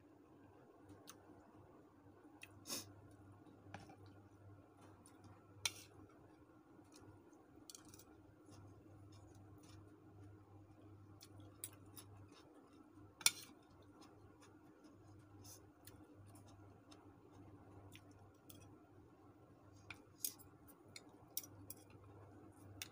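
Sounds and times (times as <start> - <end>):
faint steady hum: 0.0 - 22.9
cutlery scraping a bowl: 13.2 - 13.6.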